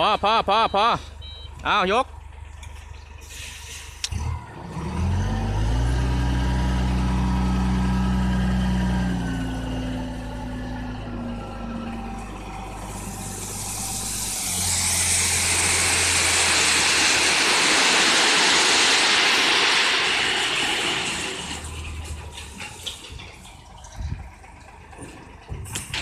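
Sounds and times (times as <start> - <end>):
truck engine running: 0.0 - 26.0
crushed stone pouring out: 13.3 - 22.1.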